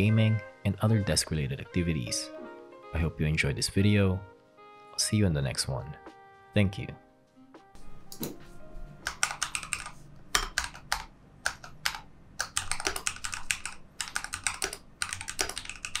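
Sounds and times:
mechanical keyboard typing: 9.0s - 16.0s.

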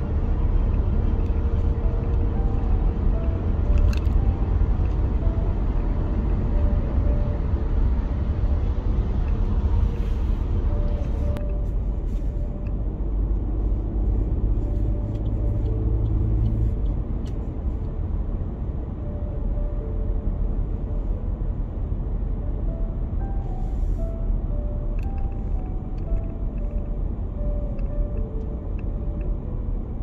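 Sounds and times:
car cabin road noise: 0.0s - 30.0s.

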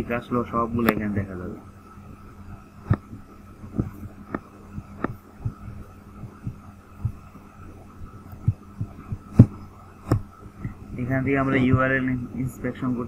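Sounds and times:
electrical hum: 0.0s - 13.0s
computer mouse clicks: 3.7s - 5.2s.

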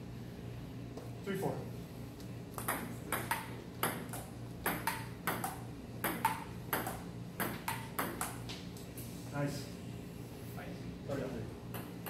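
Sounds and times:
table tennis ball clicking: 2.6s - 8.4s.

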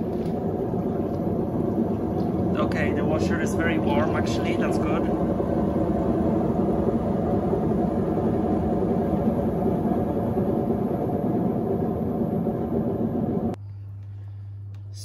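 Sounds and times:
washing machine churning: 0.0s - 13.6s.

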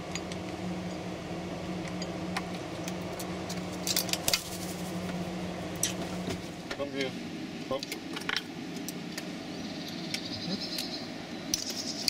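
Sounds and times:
steady low hum: 0.0s - 12.0s
wings flapping: 4.2s - 5.1s.

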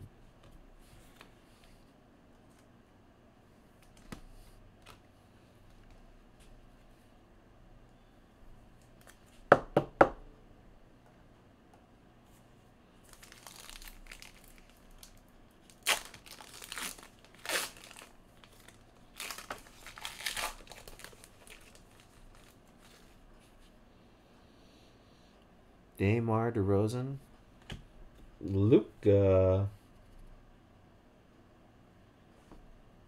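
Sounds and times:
foil wrapper tearing and crinkling: 13.1s - 23.0s.

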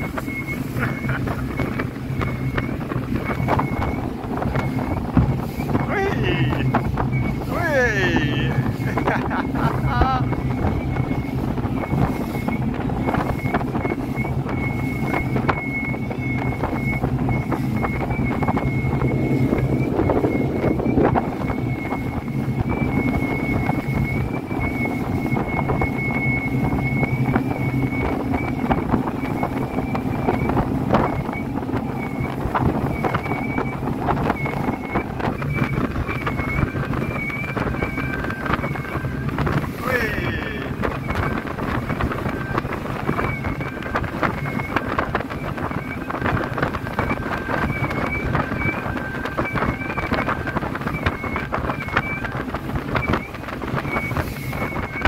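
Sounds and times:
speedboat engine running: 0.0s - 55.0s
wind buffeting microphone: 0.0s - 55.0s.

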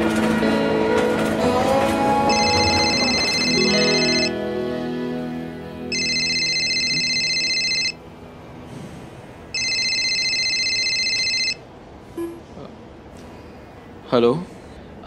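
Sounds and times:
mobile phone ringing: 2.2s - 4.4s, 5.9s - 8.0s, 9.5s - 11.6s.

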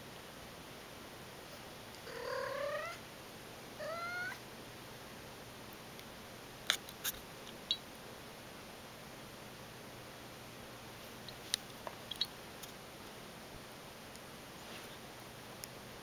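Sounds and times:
cat meowing: 2.1s - 3.0s, 3.8s - 4.4s.

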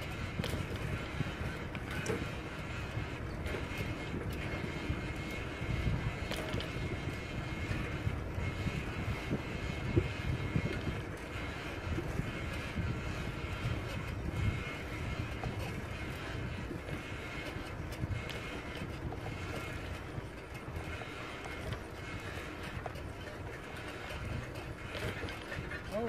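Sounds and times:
bicycle tyres rolling on concrete: 0.0s - 26.0s
wind buffeting microphone: 0.0s - 26.0s.

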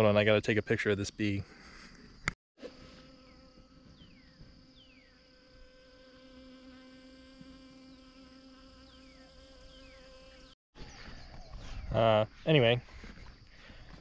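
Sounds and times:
honeybee buzzing in flight: 2.6s - 10.6s.

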